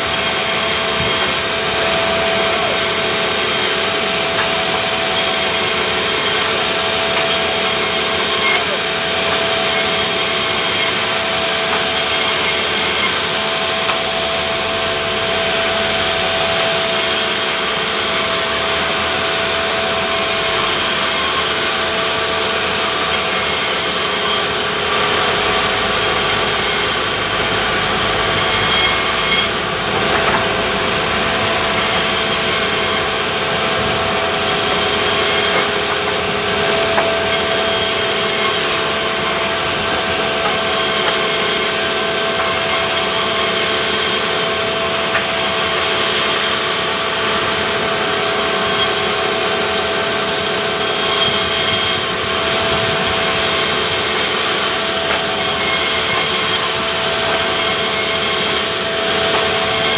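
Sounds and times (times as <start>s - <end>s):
band saw cutting log: 0.0s - 59.9s.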